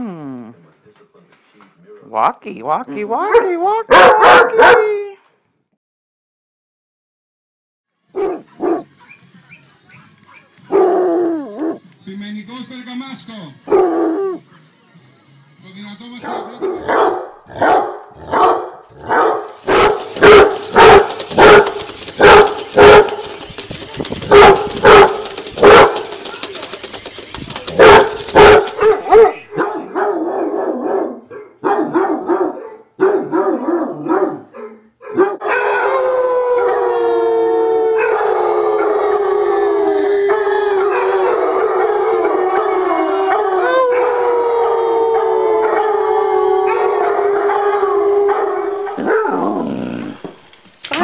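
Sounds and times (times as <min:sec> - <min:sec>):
dogs barking: 0:03.3 - 0:04.9, 0:08.1 - 0:09.2, 0:09.9 - 0:11.8, 0:13.6 - 0:14.4, 0:16.2 - 0:27.0, 0:27.6 - 0:36.9, 0:38.0 - 0:39.6, 0:40.3 - 0:49.5
dogs baying: 0:08.2 - 0:09.2, 0:09.9 - 0:11.9, 0:13.6 - 0:14.4, 0:16.2 - 0:37.0, 0:37.9 - 0:49.5
dog howling: 0:10.7 - 0:11.8, 0:35.1 - 0:50.2.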